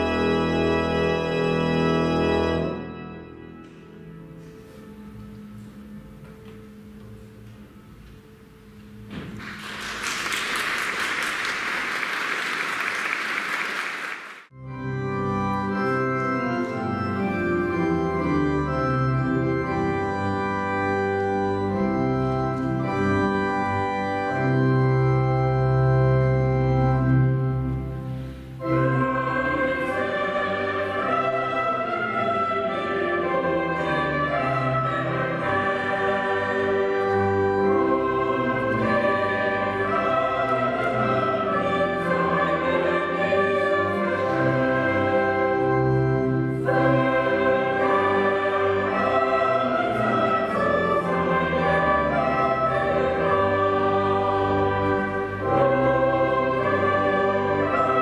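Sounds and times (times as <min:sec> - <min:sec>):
church organ chords: 0:00.0 - 0:11.6, 0:14.5 - 0:58.0
applause: 0:09.4 - 0:14.5
mixed choir singing: 0:28.6 - 0:45.9, 0:46.5 - 0:58.0.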